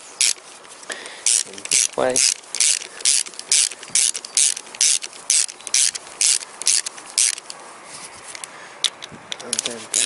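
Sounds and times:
ratchet wrench clicking: 0.2 - 0.4, 1.0 - 7.6, 8.8 - 10.0.

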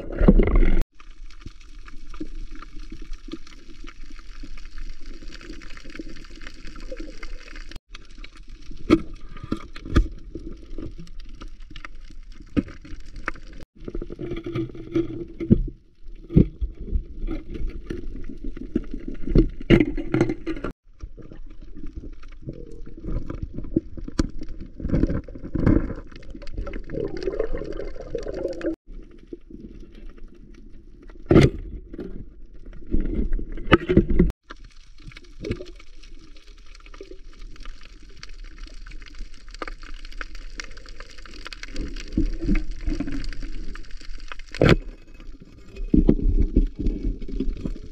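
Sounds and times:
muffled underwater rushing water: 15.9 - 31.1.

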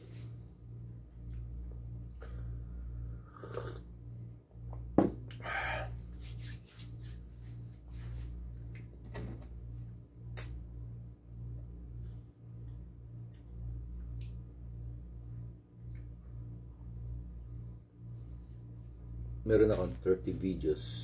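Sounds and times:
air conditioner hum: 0.0 - 21.0
mug set down on table: 5.0 - 5.2.

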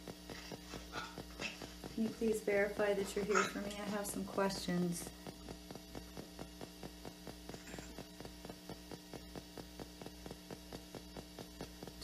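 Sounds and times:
faint steady hum: 0.0 - 12.0
rapid radio scan clicks: 0.0 - 12.0.

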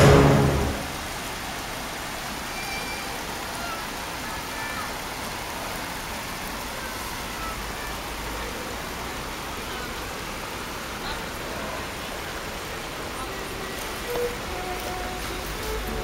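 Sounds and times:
sustained musical notes: 0.0 - 1.0, 13.3 - 16.0
outdoor background noise: 0.0 - 16.0
faint distant voices: 1.8 - 16.0.

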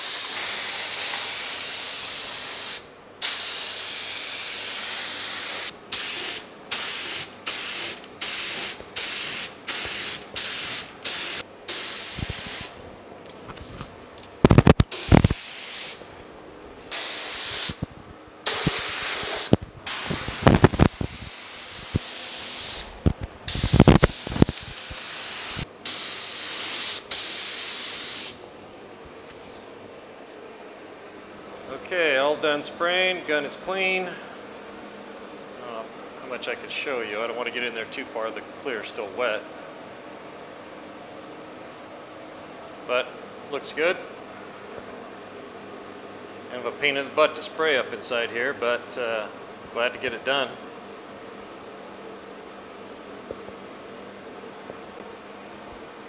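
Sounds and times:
paint spray gun hissing: 0.0 - 12.8, 14.8 - 16.0, 16.9 - 17.8, 18.4 - 28.4.

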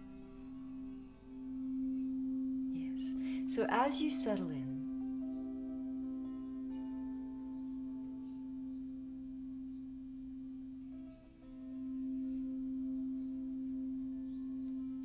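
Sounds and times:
singing bowl low tone: 0.0 - 15.0.

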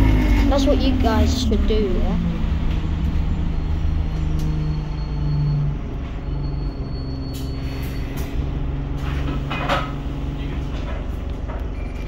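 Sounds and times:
bus engine hum: 0.0 - 12.0
rattles inside bus: 0.0 - 12.0
road rumble: 0.0 - 12.0.

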